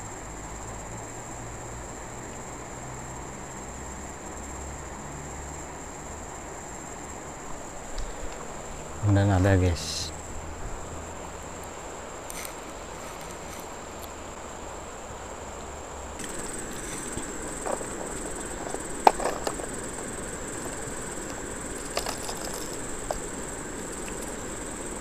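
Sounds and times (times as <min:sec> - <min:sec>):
insects chirring: 0:00.0 - 0:25.0
river rushing: 0:15.9 - 0:25.0
fishing tackle clicking on stones: 0:16.2 - 0:24.5.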